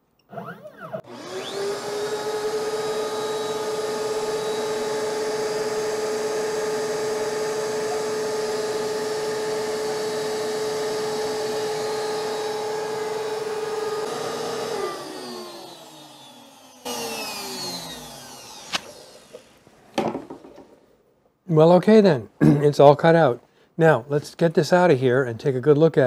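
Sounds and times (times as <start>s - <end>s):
router running high-pitched: 0.4s - 19.5s
dust collector running: 1.0s - 19.6s.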